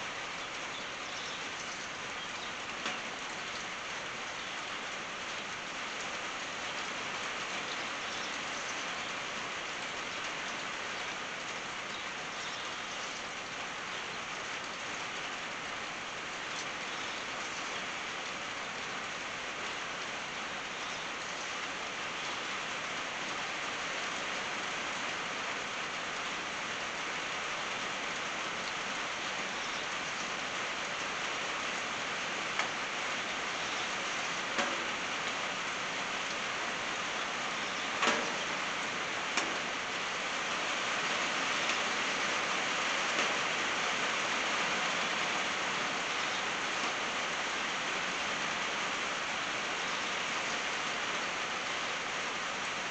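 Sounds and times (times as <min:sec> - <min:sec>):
rain on a tin roof: 0:00.0 - 0:52.9.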